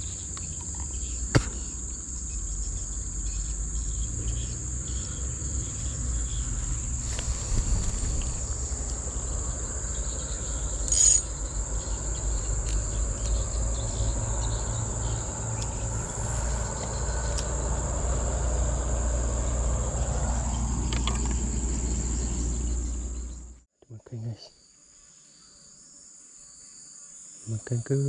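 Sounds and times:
high-pitched insect drone: 0.0s - 23.4s
low rumble: 6.4s - 10.7s.

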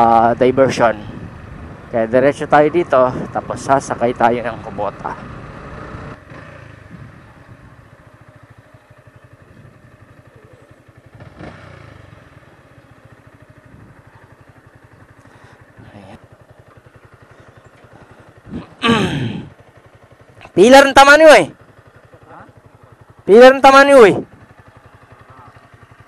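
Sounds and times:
motorcycle engine idling: 0.0s - 26.0s
man calling out loudly: 18.5s - 19.5s, 20.4s - 21.6s, 23.2s - 24.3s.

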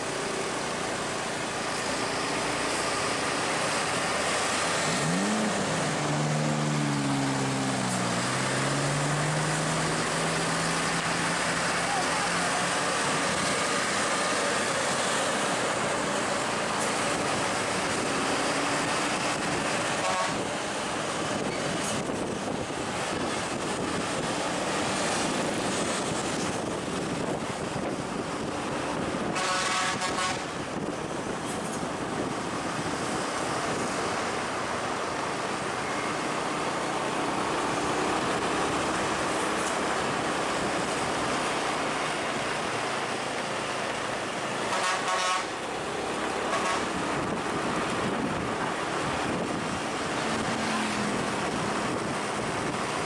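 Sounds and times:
traffic noise: 0.0s - 53.0s
vehicle horn: 20.0s - 20.4s, 29.4s - 30.5s, 44.7s - 45.6s, 46.5s - 47.0s.

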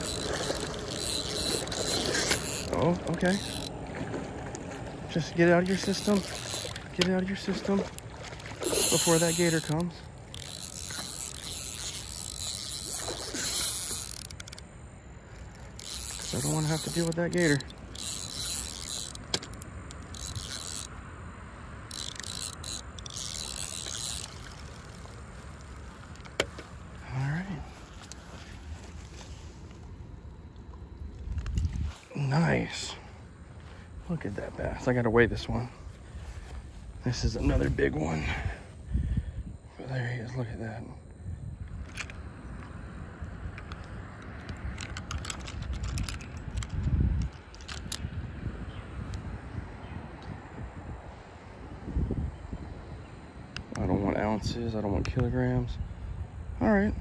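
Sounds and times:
fishing reel whirring: 0.0s - 30.4s, 31.0s - 33.9s, 34.8s - 39.4s, 41.6s - 48.2s
wind rumble on microphone: 22.0s - 57.0s.

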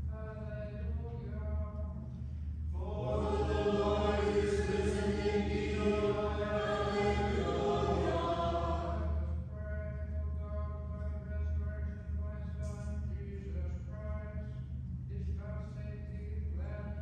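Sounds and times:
congregation singing plainsong: 2.8s - 9.4s.

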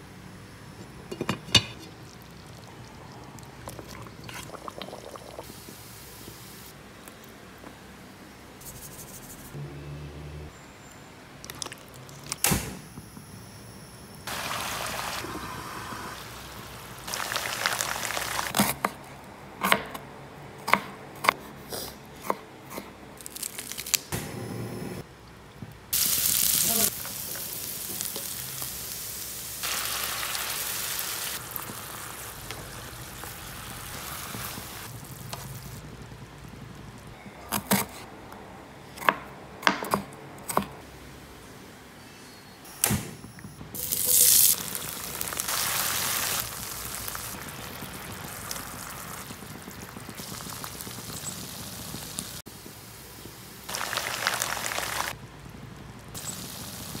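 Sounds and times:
food sizzling in hot oil: 14.3s - 18.6s, 26.0s - 35.8s, 43.8s - 52.4s, 53.6s - 55.2s, 56.2s - 57.0s.

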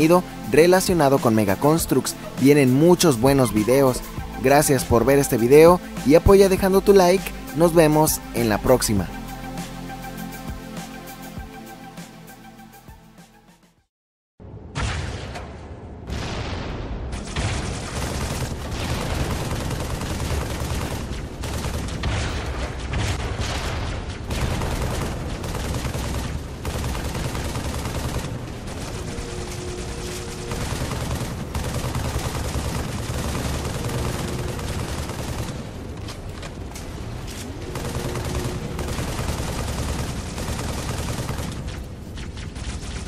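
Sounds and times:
rapid gunfire: 17.2s - 36.1s, 37.7s - 43.0s.

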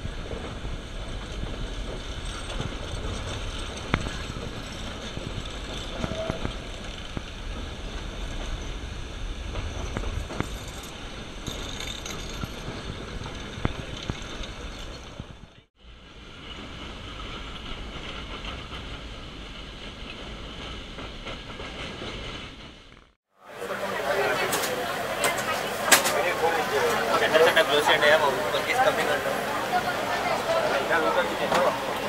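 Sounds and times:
train wheels rumbling and rattling: 0.0s - 32.0s.

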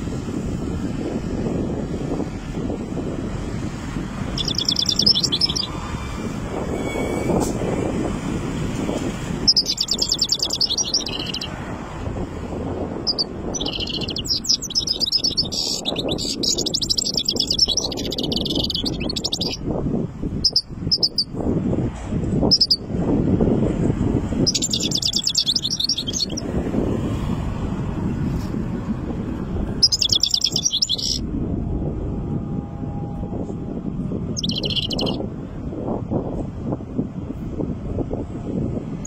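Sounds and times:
goldfinch twittering song: 4.3s - 5.8s, 9.4s - 11.6s, 13.0s - 19.6s, 20.4s - 21.3s, 22.5s - 22.8s, 24.4s - 26.5s, 29.8s - 31.2s, 34.3s - 35.2s.

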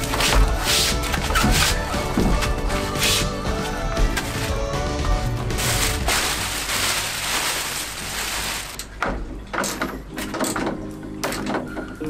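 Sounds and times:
plastic wrapping rustling: 0.0s - 9.0s
faint background music: 0.0s - 12.0s.

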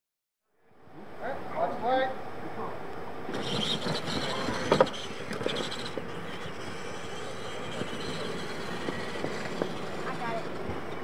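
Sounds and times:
tyres on loose dirt: 3.2s - 11.0s
toy truck motors whining: 3.3s - 11.0s.

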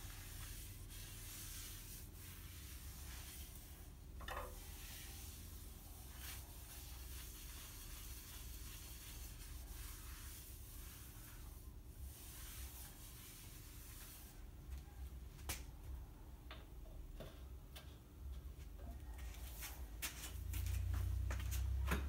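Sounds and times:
cloth wiping wood: 0.0s - 14.5s.

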